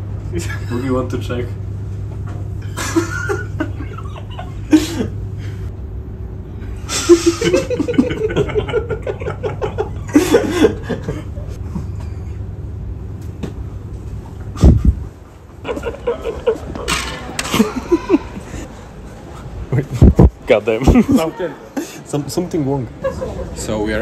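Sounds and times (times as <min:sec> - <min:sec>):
low background hum: 0:00.0 - 0:24.0
men laughing: 0:02.6 - 0:05.6, 0:06.9 - 0:12.2, 0:15.5 - 0:18.9, 0:20.8 - 0:22.0, 0:22.9 - 0:23.6.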